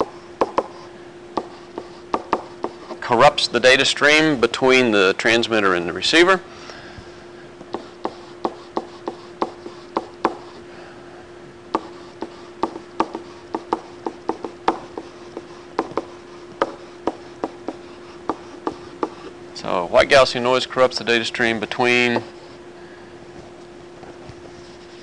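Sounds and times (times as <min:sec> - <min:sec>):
faint steady hum: 0:00.0 - 0:25.0
stylus tapping on tablet screen: 0:11.8 - 0:19.2.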